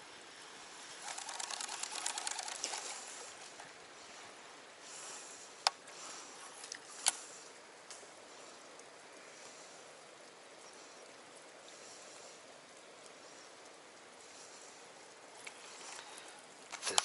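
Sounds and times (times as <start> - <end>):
fishing reel clicking whir: 1.0 - 3.3.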